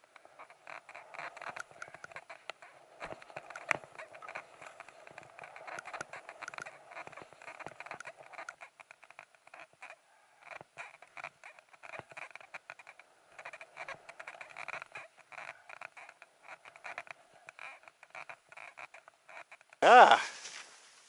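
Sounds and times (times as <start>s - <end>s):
skis scraping over snow: 0.0s - 8.4s
crunching clicks: 0.1s - 9.5s.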